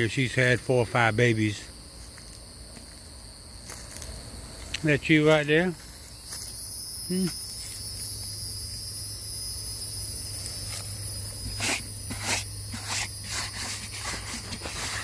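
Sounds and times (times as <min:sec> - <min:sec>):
insects trilling: 0:00.0 - 0:15.0
man murmuring: 0:07.1 - 0:07.4.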